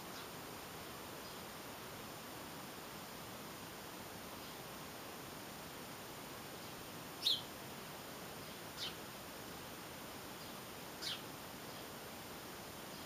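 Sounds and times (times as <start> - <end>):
small bird chirping: 0.0 - 0.4, 6.6 - 7.5, 8.4 - 9.0, 10.4 - 12.0
steady hiss: 0.0 - 13.0.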